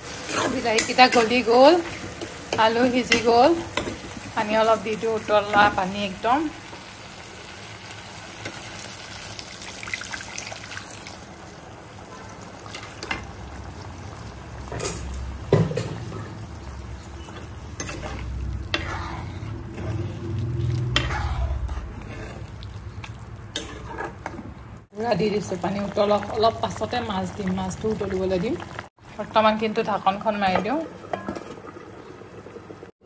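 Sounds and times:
oil sizzling: 0.0s - 33.0s
water pouring into pan: 7.0s - 18.6s
ladle scraping and knocking pan: 14.7s - 16.4s, 17.1s - 22.5s, 23.5s - 24.6s, 30.6s - 31.7s.

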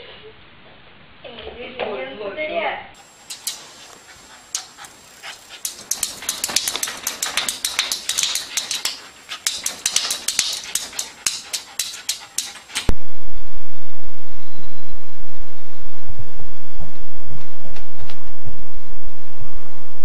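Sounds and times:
loud steady hiss: 3.0s - 12.9s
small dog yapping: 3.0s - 12.9s.

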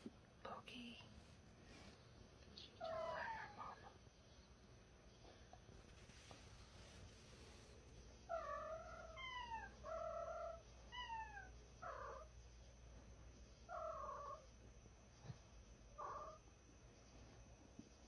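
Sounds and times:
cat yowling: 2.8s - 3.9s.

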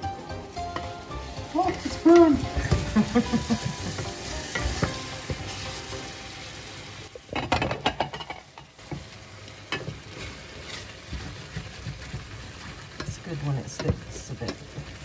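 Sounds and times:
vegetables sizzling in frying pan: 0.0s - 15.0s
wooden spatula scraping pan: 9.9s - 13.2s.

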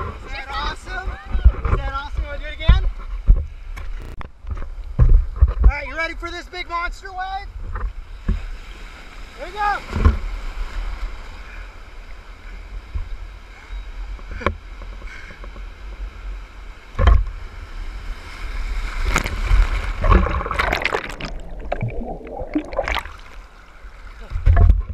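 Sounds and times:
surf and whitewater rushing: 8.5s - 11.7s, 15.9s - 24.7s
water splashes near microphone: 18.0s - 24.8s.

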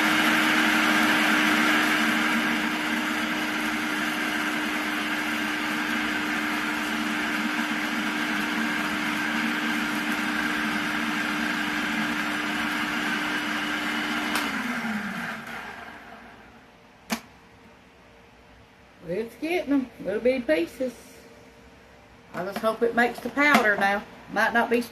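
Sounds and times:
food processor motor whine: 0.0s - 16.6s.

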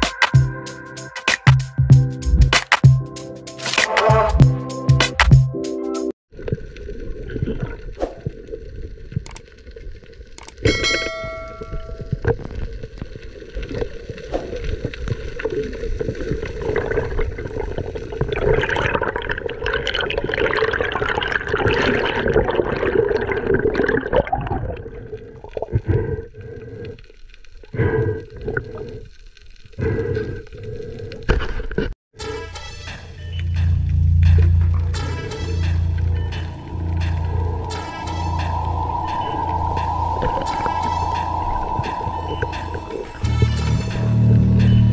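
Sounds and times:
underwater water gurgling: 6.3s - 10.4s, 11.5s - 31.9s, 34.2s - 43.6s
short ringing tone: 10.7s - 12.2s
steady low hum: 33.0s - 44.9s
rush of water: 35.9s - 43.6s.

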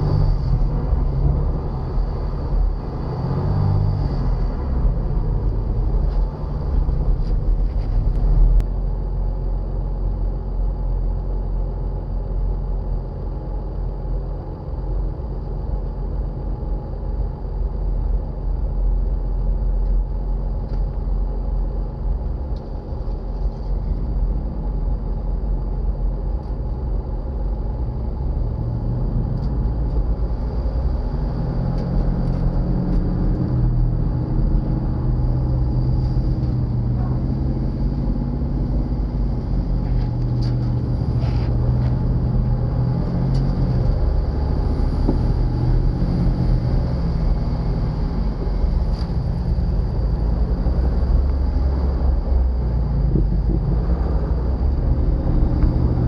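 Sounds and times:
vehicle engine rumbling: 0.0s - 56.0s.

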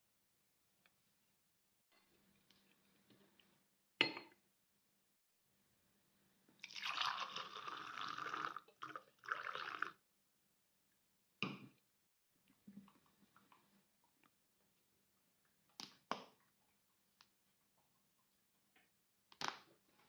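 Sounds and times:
milk pouring into glass: 6.6s - 10.0s.

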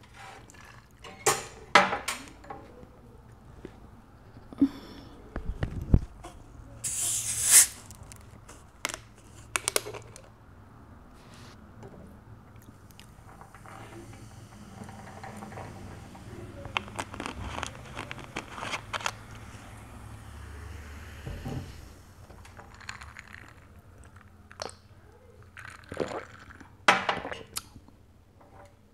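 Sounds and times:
bottle cap hiss: 6.8s - 7.9s
plastic bottle clicks and crinkles: 16.6s - 19.4s.

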